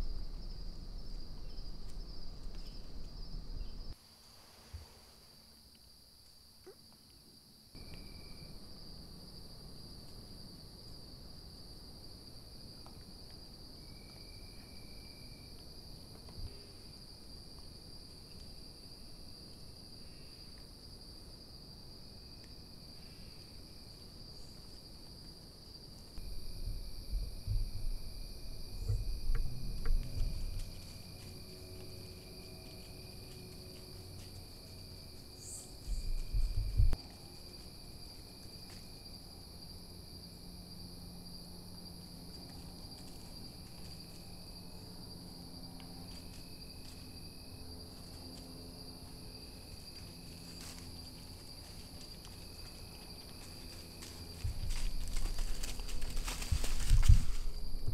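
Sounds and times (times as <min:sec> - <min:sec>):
crickets and insects chirping: 0:00.0 - 0:57.9
low rumbling noise: 0:26.2 - 0:31.0.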